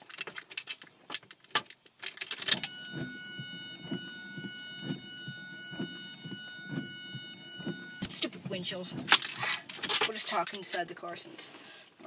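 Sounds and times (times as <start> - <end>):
car keys jangling: 0.0 - 10.9
high electronic whine: 2.5 - 9.1
soft electronic pulse: 2.6 - 9.1.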